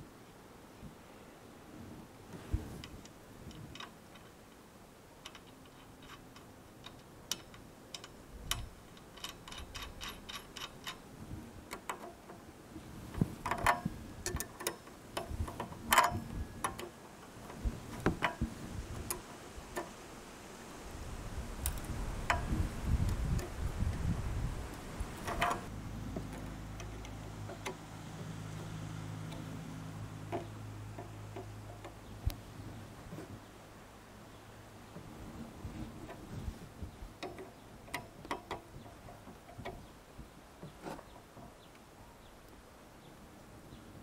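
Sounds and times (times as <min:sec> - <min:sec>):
metal wrench clicks and clinks: 0:05.2 - 0:11.0.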